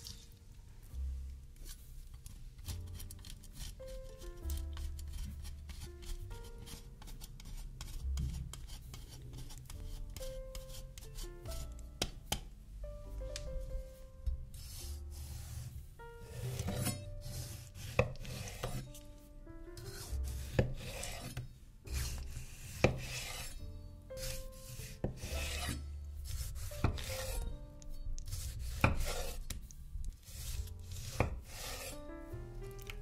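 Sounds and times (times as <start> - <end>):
soft background music: 0.0 - 33.0
knife cutting on board: 16.3 - 18.8, 19.8 - 23.6, 24.2 - 27.4, 28.3 - 29.6, 30.3 - 32.0.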